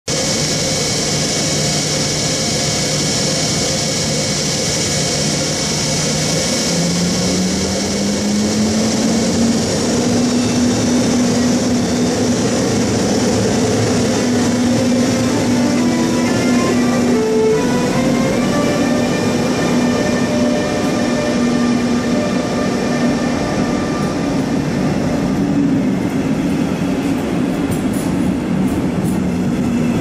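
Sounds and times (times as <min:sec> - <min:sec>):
electric locomotive hum: 0:00.1 - 0:30.0
high whine: 0:00.1 - 0:30.0.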